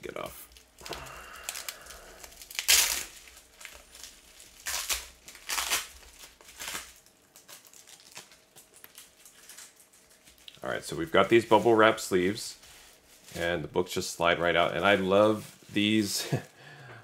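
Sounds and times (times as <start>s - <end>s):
bubble wrap rustling and crinkling: 0.1s - 16.6s
packing tape tearing: 0.5s - 10.6s.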